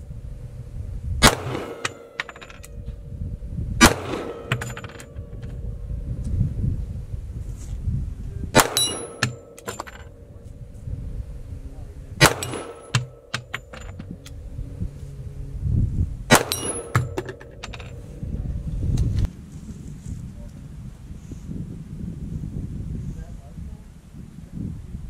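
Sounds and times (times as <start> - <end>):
pistol shots: 1.2 - 2.2, 3.8 - 5.4, 8.5 - 9.8, 12.2 - 13.7, 16.3 - 17.4
steel target clanging: 1.2 - 2.9, 3.8 - 5.6, 8.6 - 10.4, 12.2 - 14.3, 16.3 - 18.1.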